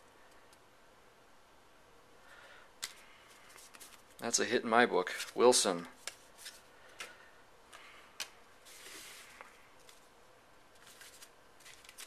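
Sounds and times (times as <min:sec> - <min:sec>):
soft brushing rustle: 0:08.6 - 0:10.1.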